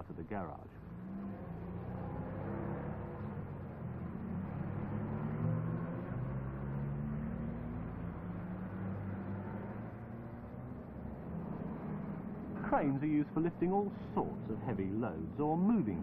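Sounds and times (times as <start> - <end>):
truck engine running: 10.7 - 16.0.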